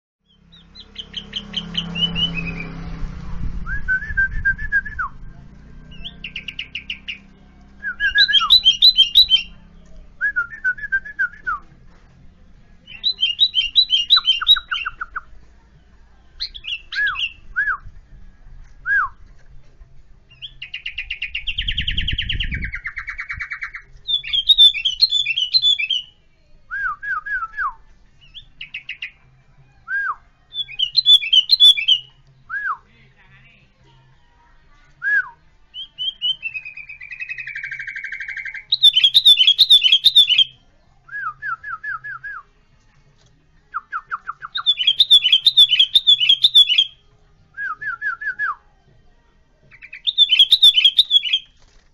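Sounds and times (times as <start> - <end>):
bird chirping song: 0.2 - 3.0, 4.7 - 11.6, 12.7 - 18.2, 18.8 - 32.7, 35.0 - 42.3, 43.7 - 48.4, 49.6 - 51.6
harsh bird call: 49.7 - 51.5.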